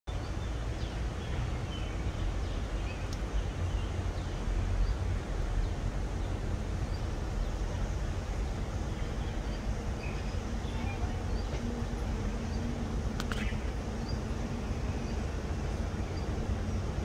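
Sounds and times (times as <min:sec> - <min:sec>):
steady low rumble: 0:00.1 - 0:17.0
light click: 0:03.1 - 0:03.3.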